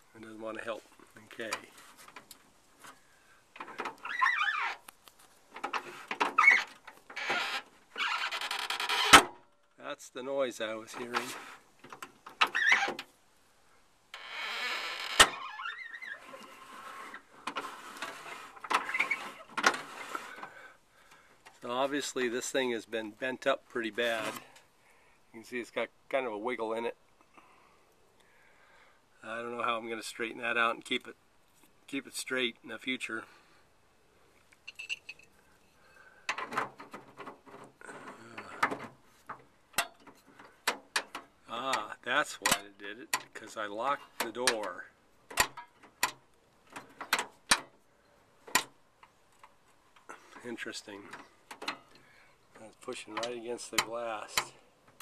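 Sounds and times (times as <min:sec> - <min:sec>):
window support scraping on rod: 0:05.6 - 0:09.2, 0:11.0 - 0:11.7, 0:15.2 - 0:20.5, 0:24.1 - 0:24.5
sharp latch clicks: 0:08.8 - 0:09.4, 0:45.3 - 0:47.8, 0:48.5 - 0:49.6
door latch linkage rattling and creaking: 0:14.2 - 0:15.9, 0:44.2 - 0:47.8.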